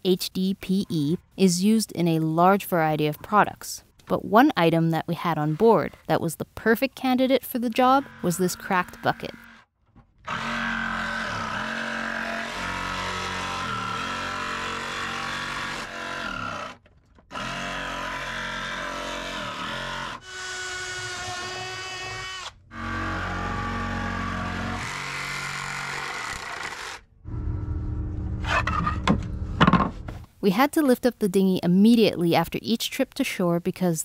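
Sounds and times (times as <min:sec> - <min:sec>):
jigsaw cutting plastic: 0:07.7 - 0:09.6, 0:10.2 - 0:27.0.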